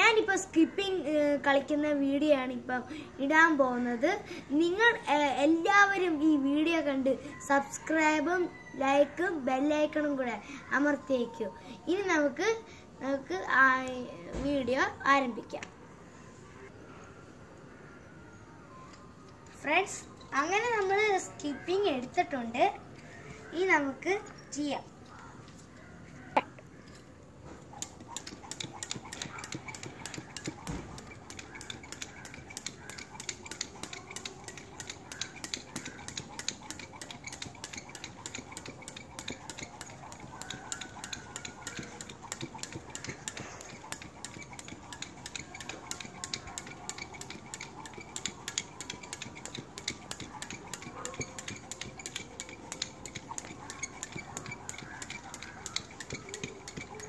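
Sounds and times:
skipping rope and feet tapping tiles: 0:27.7 - 0:57.0.

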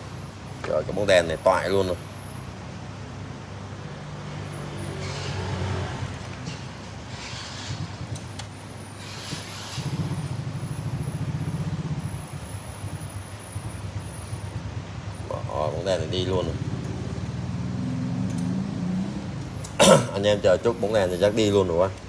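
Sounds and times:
vehicle engine running: 0:05.9 - 0:19.8.

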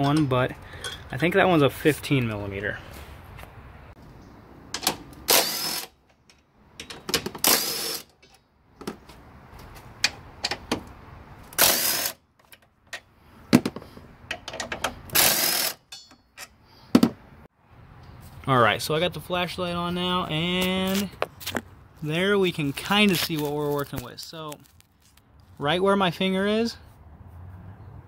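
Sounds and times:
bolts and tools rattling: 0:00.0 - 0:01.2, 0:04.7 - 0:09.1, 0:11.6 - 0:17.2.

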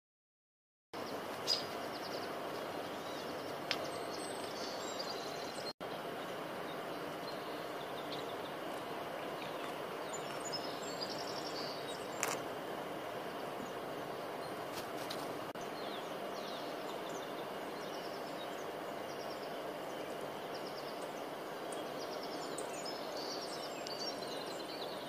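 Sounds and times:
outdoor background noise: 0:01.0 - 0:25.0
high bird chirps: 0:01.4 - 0:12.4.

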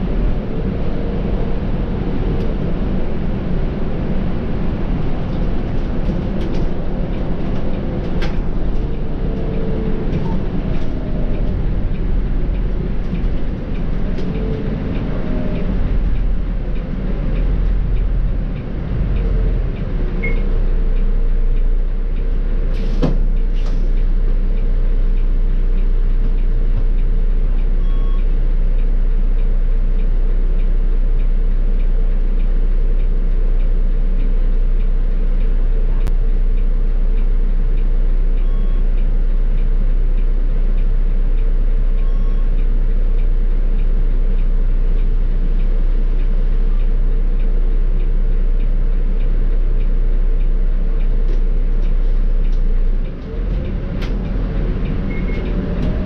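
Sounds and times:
bus diesel engine humming: 0:00.0 - 0:56.0.

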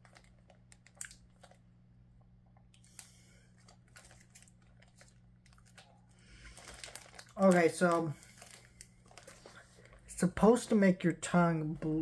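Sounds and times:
faint chewing of candy: 0:00.0 - 0:01.6, 0:02.5 - 0:10.1.

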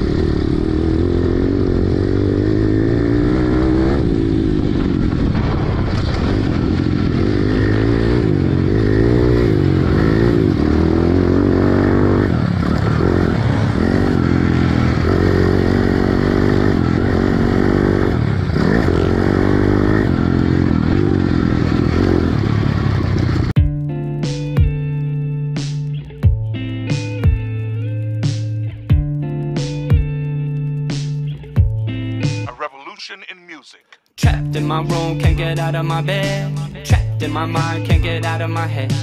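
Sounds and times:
pit bike engine revving: 0:00.0 - 0:23.6.

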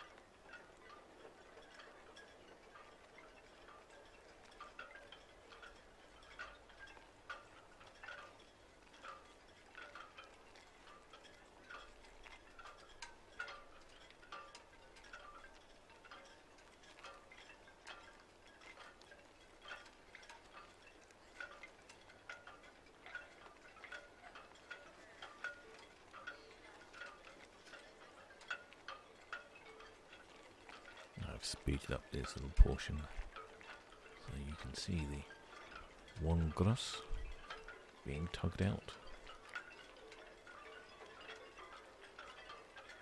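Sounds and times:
light tinkling pings: 0:00.0 - 0:43.0
low hiss: 0:27.7 - 0:43.0.

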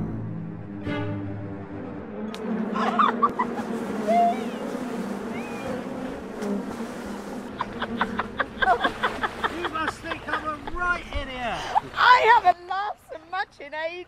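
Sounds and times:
person splashing in river: 0:08.6 - 0:10.7.

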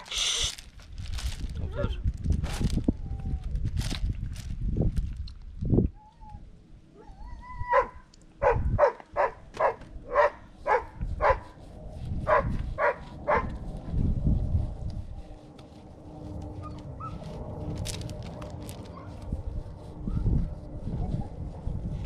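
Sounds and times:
dog whining: 0:05.9 - 0:08.0
dog barking: 0:07.7 - 0:11.4, 0:12.3 - 0:13.5.

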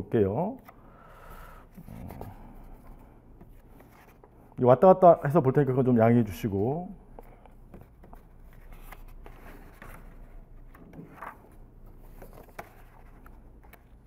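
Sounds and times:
paper rustling: 0:07.2 - 0:14.0.

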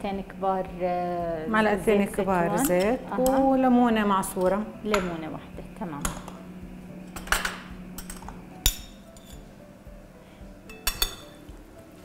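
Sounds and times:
spoon clinking against ceramic bowl: 0:07.2 - 0:09.4, 0:10.7 - 0:11.4.

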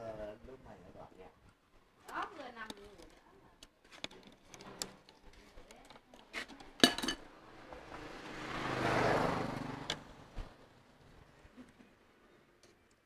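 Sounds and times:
passing vehicle: 0:07.3 - 0:11.3.

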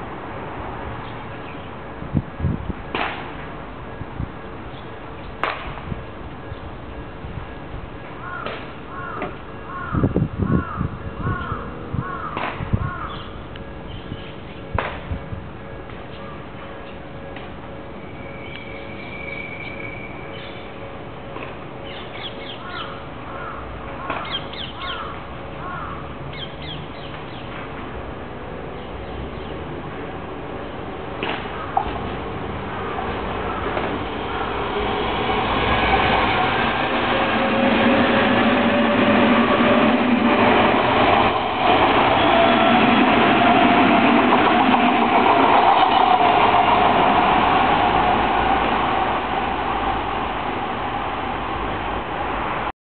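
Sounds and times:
electric train passing: 0:00.0 - 0:12.0, 0:13.3 - 0:52.7
birds calling: 0:08.2 - 0:14.6, 0:21.8 - 0:27.5.

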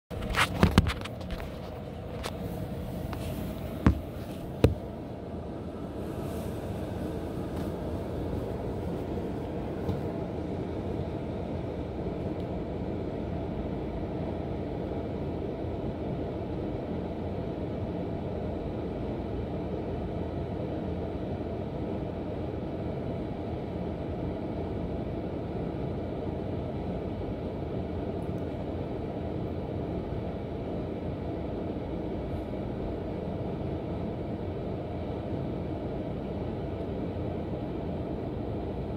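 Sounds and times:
air conditioner humming: 0:00.1 - 0:38.9.

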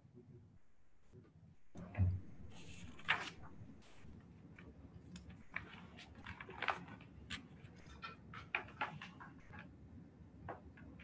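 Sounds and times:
low steady hum: 0:00.0 - 0:08.5.

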